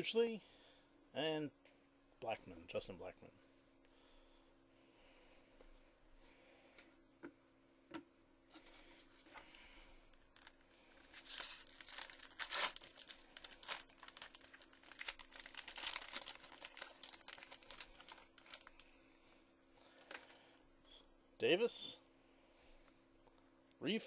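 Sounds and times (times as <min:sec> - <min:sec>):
card pack wrapper tearing: 0:10.4 - 0:18.8.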